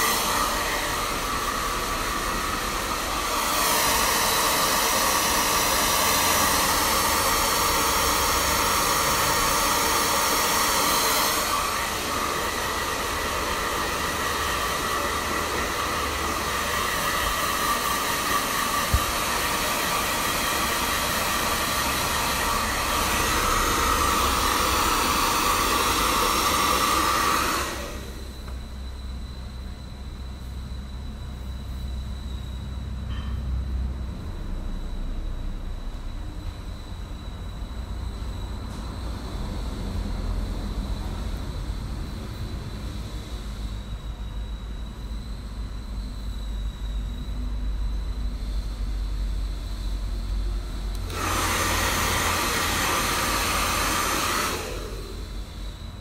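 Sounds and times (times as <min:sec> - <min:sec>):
hair dryer click: 0:00.0 - 0:01.4, 0:16.7 - 0:21.5, 0:50.9 - 0:55.0
hair dryer blowing: 0:00.0 - 0:28.7, 0:49.5 - 0:56.0.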